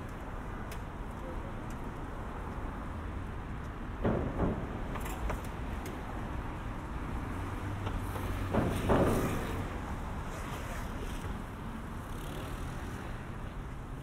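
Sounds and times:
low traffic rumble: 0.0s - 14.0s
cars passing close by: 5.5s - 14.0s.

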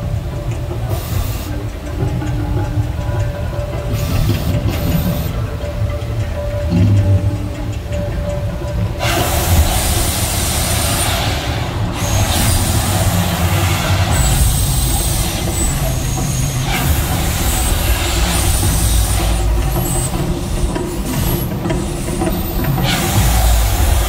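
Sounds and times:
deep steady rumble: 0.0s - 24.0s
gas flame jets whooshing: 9.0s - 24.0s.

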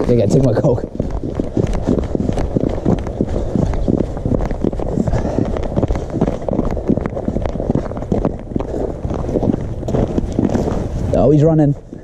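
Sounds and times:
footsteps crunching on snow: 0.0s - 12.0s
wind rumbling on microphone: 0.0s - 12.0s.

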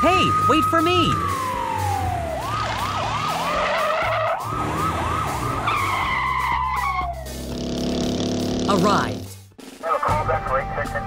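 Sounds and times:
police siren wailing: 0.0s - 7.5s.

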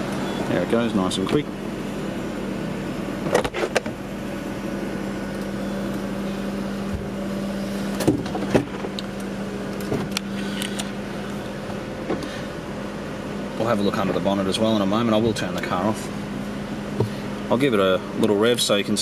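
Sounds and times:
car engine idling: 0.0s - 19.0s
electric roof motor humming: 0.0s - 19.0s
roof clunks: 7.9s - 9.0s, 11.6s - 12.4s.

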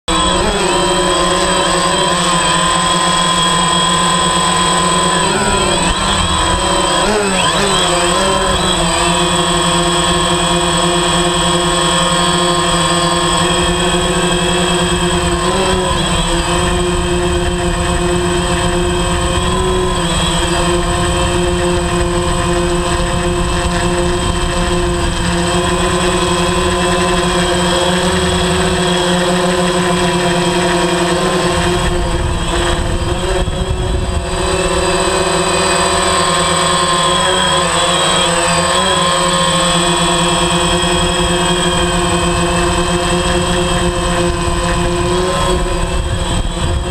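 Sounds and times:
drone propellers buzzing whine: 0.0s - 46.9s.

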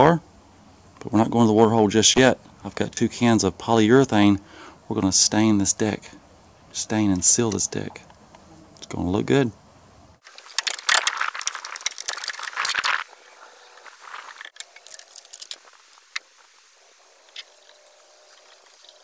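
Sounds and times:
metal can rattling and scraping: 10.3s - 13.1s.

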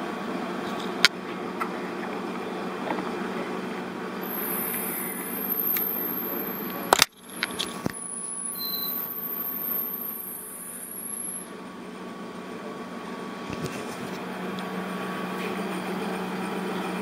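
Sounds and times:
low machine hum: 3.4s - 12.1s
faint high whine: 4.2s - 11.7s.

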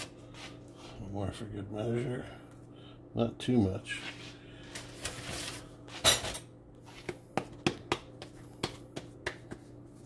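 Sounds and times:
hands pressing dough: 6.9s - 10.0s
dough knocking on wooden board: 7.0s - 9.7s.

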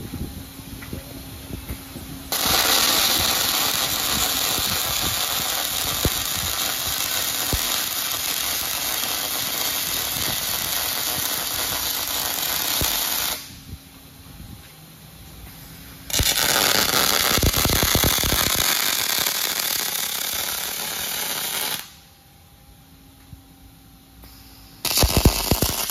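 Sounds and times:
welding arc sizzling: 2.3s - 13.5s, 16.1s - 22.1s, 24.4s - 25.9s
sharp pops of welding arc: 2.3s - 13.6s, 16.1s - 22.0s, 24.3s - 25.9s.

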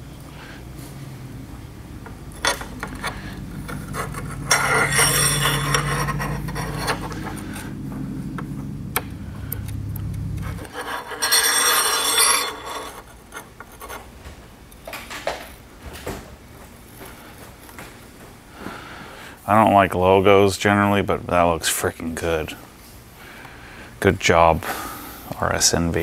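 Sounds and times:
low hum: 0.0s - 12.9s
crackling rubbing noise: 9.3s - 11.0s.

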